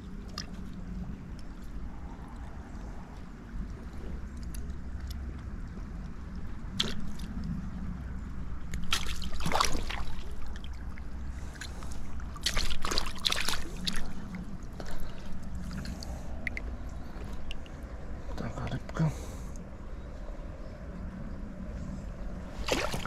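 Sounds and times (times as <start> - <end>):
low rumble: 0.0 - 23.0
stream water splashing: 4.2 - 7.5, 8.5 - 17.8, 22.5 - 23.0.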